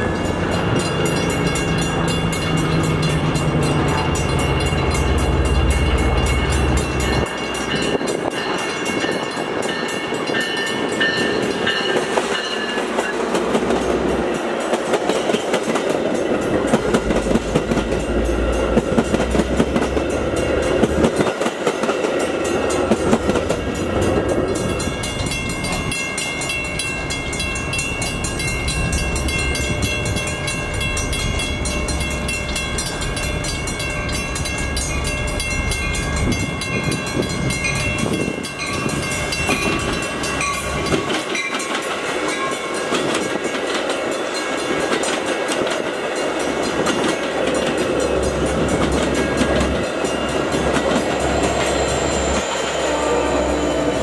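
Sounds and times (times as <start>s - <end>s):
wheels clicking over rail joints: 0.0s - 52.4s
diesel train rumbling past: 0.0s - 54.0s
train rolling past: 0.0s - 54.0s
steady high-pitched tones: 47.2s - 54.0s.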